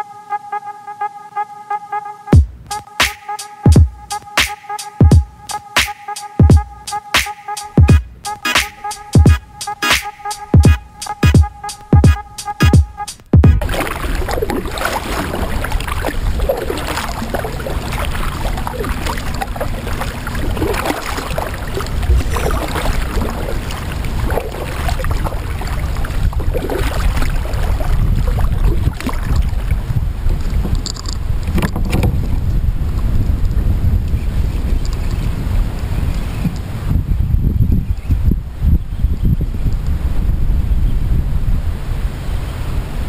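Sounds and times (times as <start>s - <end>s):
waves lapping against hull: 13.6s - 37.0s
wind rumble on microphone: 13.6s - 43.0s.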